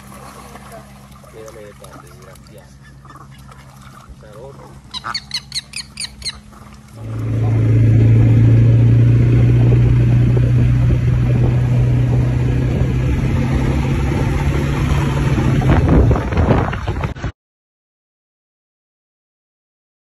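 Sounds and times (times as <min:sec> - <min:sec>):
quad bike engine droning: 0:00.0 - 0:17.3.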